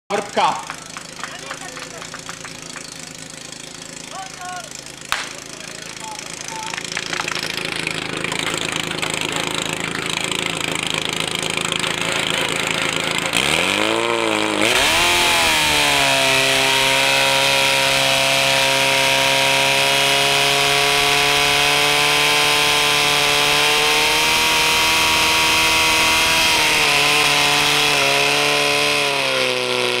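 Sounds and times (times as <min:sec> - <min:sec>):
pump engine running: 0:00.1 - 0:30.0
sharp crack: 0:05.0 - 0:09.6.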